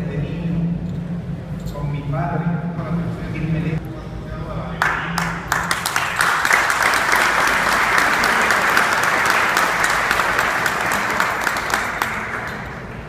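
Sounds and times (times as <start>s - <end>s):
crowd applauding: 4.8s - 13.0s.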